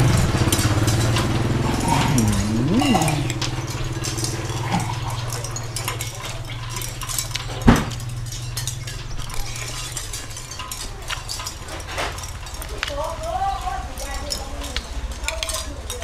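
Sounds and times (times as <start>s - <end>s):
steady low hum: 0.0s - 7.1s
cutlery clinking on a plate: 0.2s - 16.0s.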